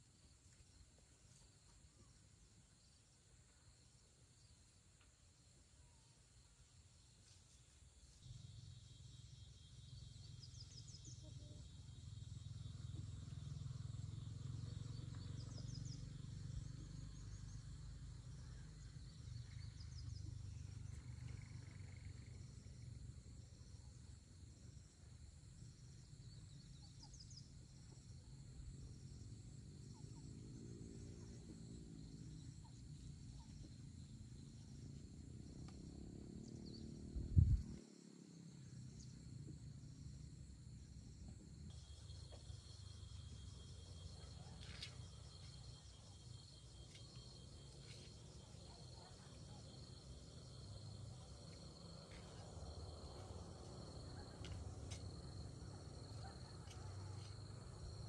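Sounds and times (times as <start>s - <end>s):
low rumble: 37.1s - 37.8s
insects trilling: 41.6s - 58.0s.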